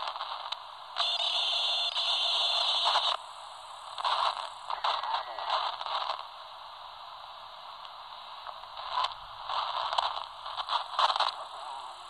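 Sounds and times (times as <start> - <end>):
radio signal bursts: 0.0 - 6.3
cb radio static hiss: 0.0 - 12.0.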